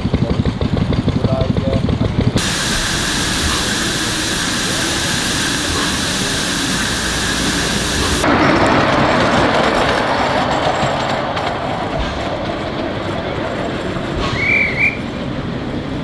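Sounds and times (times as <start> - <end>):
miniature train running on track: 0.0 - 16.0
steam locomotive hissing: 2.4 - 8.3, 13.7 - 16.0.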